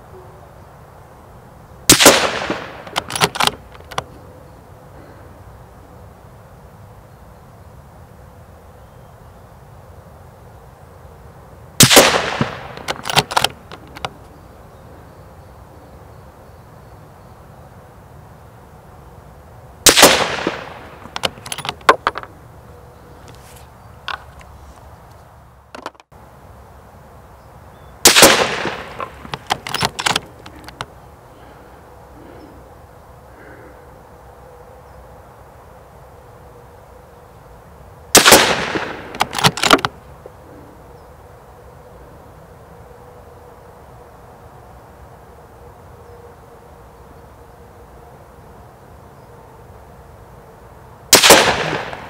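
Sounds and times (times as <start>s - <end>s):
rifle shots: 1.9s - 3.6s, 11.8s - 13.7s, 19.8s - 21.7s, 28.0s - 30.7s, 38.2s - 39.9s, 51.1s - 52.0s.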